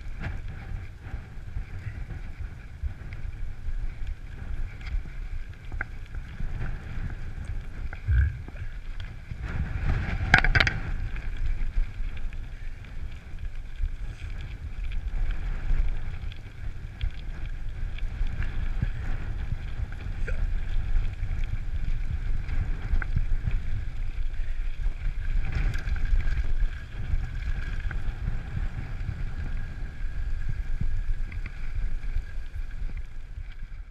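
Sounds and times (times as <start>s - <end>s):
bike frame rattling: 0.0s - 33.8s
tyres rumbling on gravel: 0.0s - 33.9s
wind buffeting microphone: 0.0s - 33.9s
bike knocking over bumps: 9.9s - 11.4s.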